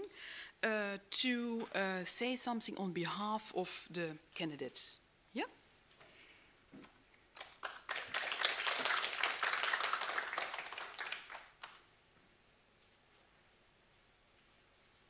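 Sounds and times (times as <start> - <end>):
audience clapping: 7.3 - 11.9.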